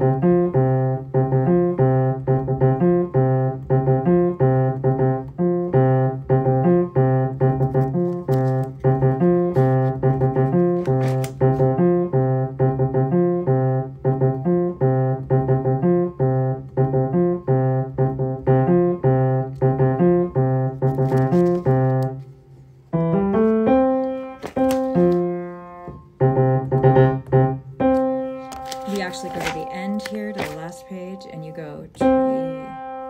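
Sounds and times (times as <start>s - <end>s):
piano bass notes: 0.0s - 33.0s
piano rolled chords: 11.5s - 33.0s.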